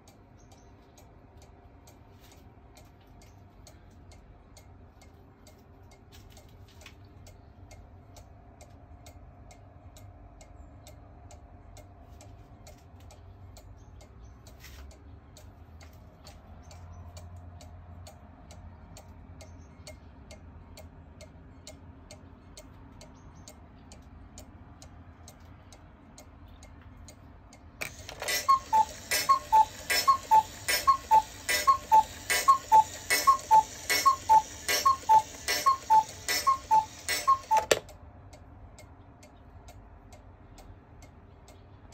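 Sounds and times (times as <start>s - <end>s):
clock ticking: 0.0s - 41.9s
two-note cuckoo calls: 27.8s - 37.8s.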